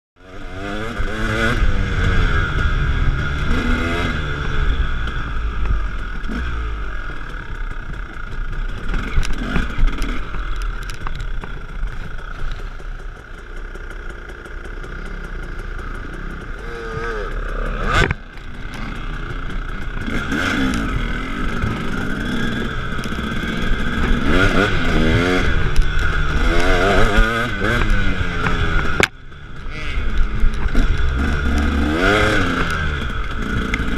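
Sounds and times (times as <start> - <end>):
dirt bike engines revving: 0.2 - 33.9
bike rattle: 7.0 - 33.9.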